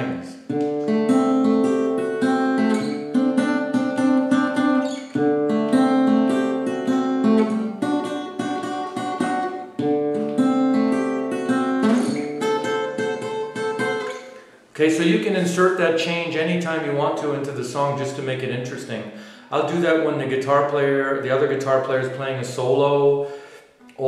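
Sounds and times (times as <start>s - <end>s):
fingerstyle acoustic blues guitar: 0.4s - 14.6s.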